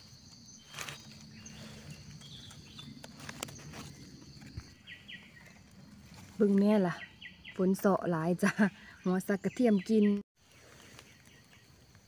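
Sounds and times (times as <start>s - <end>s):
insects trilling: 0.0s - 6.5s
rustling in dry leaf litter: 0.0s - 7.0s.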